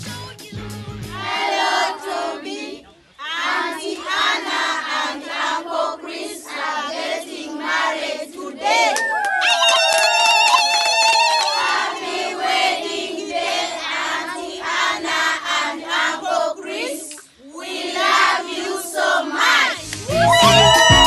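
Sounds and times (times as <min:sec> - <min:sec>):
music: 0:00.0 - 0:01.5, 0:19.8 - 0:21.0
children calling in unison: 0:20.1 - 0:21.0.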